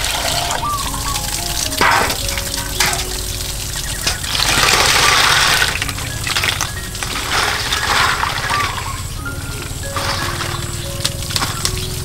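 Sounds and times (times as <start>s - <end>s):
small waterfall running: 0.0s - 12.0s
water splashing in metal basin: 0.0s - 12.0s
rush of snails tipped into water: 4.3s - 8.9s.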